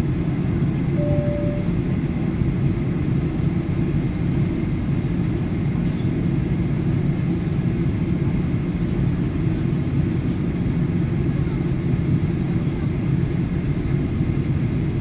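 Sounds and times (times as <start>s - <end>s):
jet engine and airflow: 0.0s - 15.0s
faint steady whine: 0.9s - 2.0s.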